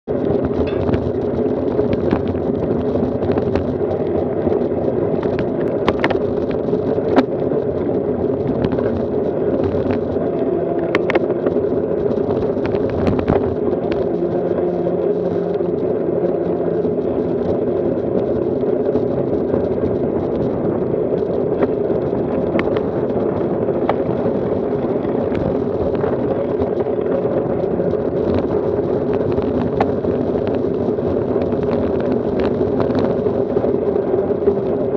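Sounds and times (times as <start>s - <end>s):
bike rolling and wind noise: 0.0s - 34.9s
sharp clicks and knocks: 0.4s - 1.2s, 10.9s - 11.6s.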